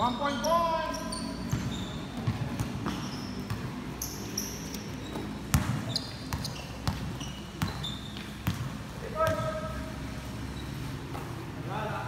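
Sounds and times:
sneakers squeaking: 0.0 - 11.6
basketball bouncing: 1.4 - 4.2, 5.0 - 9.7.

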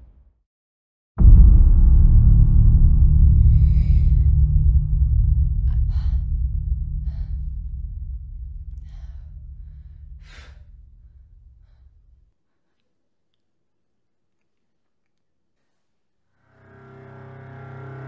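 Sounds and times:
deep low rumbling drone: 1.2 - 12.2
woman gasping: 8.6 - 12.8.

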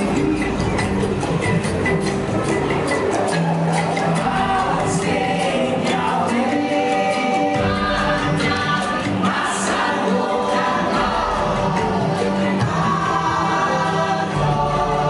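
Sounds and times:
choir singing sustained notes: 3.8 - 15.0.

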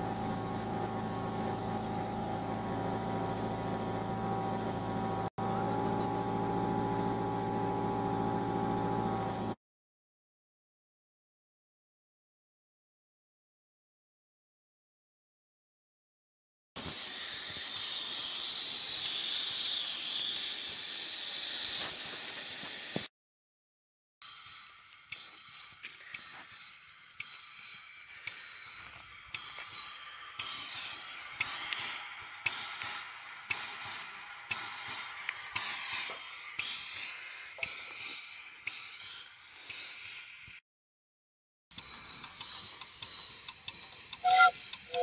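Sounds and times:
steam hissing: 16.8 - 23.1, 24.2 - 40.6, 41.8 - 45.0.

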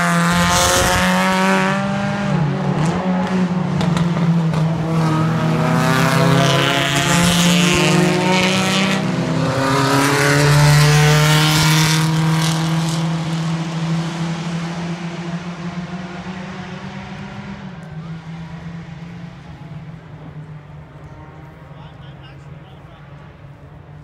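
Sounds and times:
race car engine accelerating: 0.0 - 24.0.

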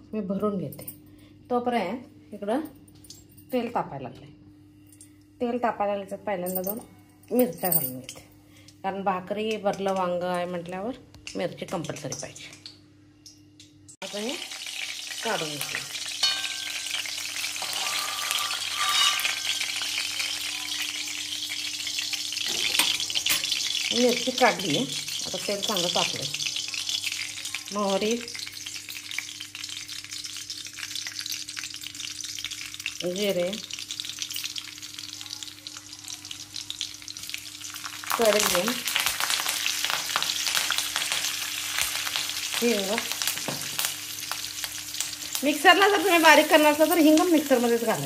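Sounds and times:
oil sizzling in a pan: 11.3 - 48.0
spoon clinking against pan: 16.2 - 19.9
spoon scraping pan: 16.2 - 20.8.

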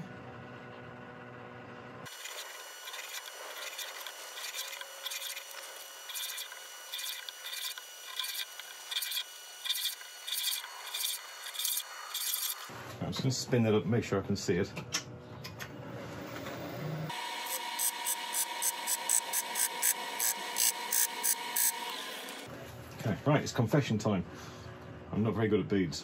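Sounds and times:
pencil scratching on wood: 2.2 - 12.6.

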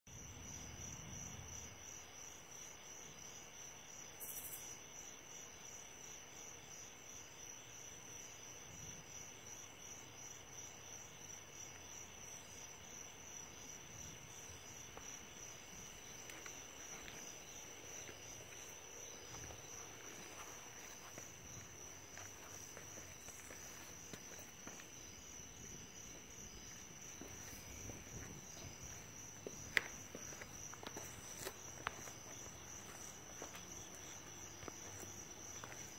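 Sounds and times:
crickets chirping: 0.1 - 35.9.

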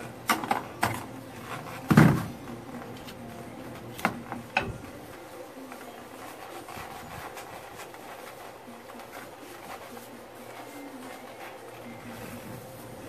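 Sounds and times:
rag rubbing on metal shaft: 4.8 - 13.0.

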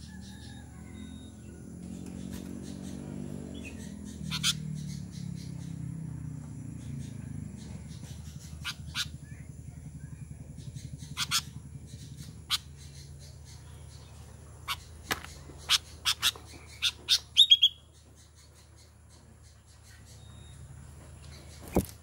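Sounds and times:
bird call notes: 14.7 - 17.9.

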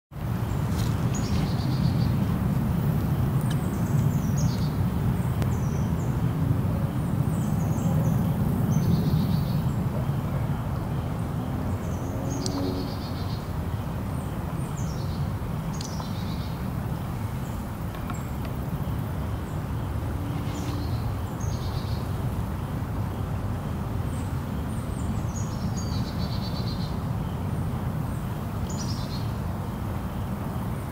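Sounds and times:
stream flowing: 12.5 - 30.9.

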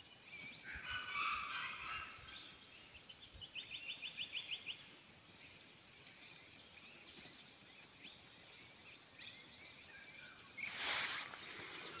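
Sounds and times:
faint bird chirps: 0.0 - 12.0
high insect drone: 3.5 - 12.0
loud rustling hiss: 10.6 - 12.0.

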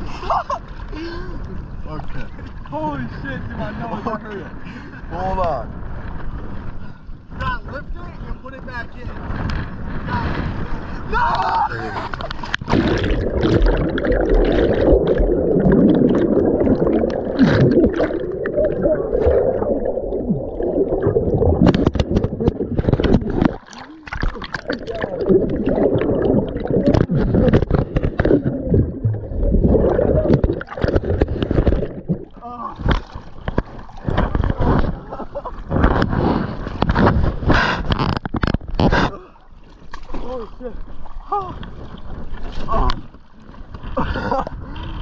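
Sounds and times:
water splashing and sloshing: 9.0 - 45.0
underwater rushing churn: 11.8 - 38.1
bubbles warbling: 12.6 - 32.4
camera knocking and scraping: 21.6 - 23.7, 27.0 - 28.6, 35.8 - 39.0.

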